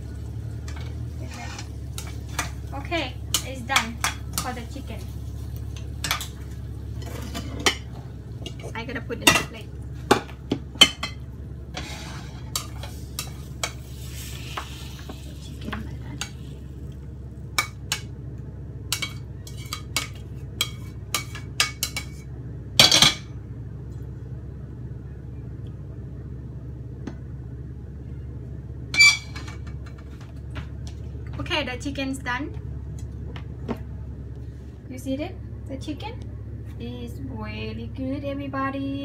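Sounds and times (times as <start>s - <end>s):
steady low hum: 0.0s - 39.0s
utensil scraping frying pan: 0.6s - 8.7s, 11.7s - 16.6s, 18.9s - 22.2s.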